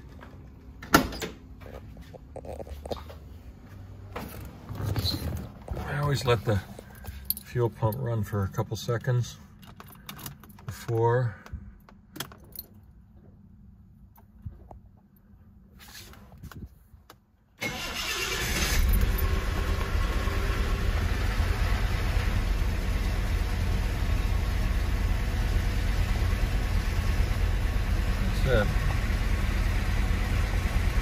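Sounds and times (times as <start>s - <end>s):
car engine idling: 17.7s - 31.0s.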